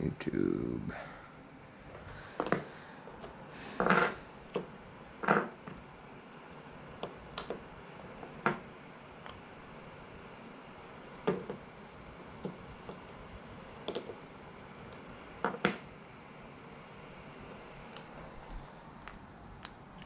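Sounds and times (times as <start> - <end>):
objects clicking and knocking: 11.2 - 11.6, 13.8 - 14.2.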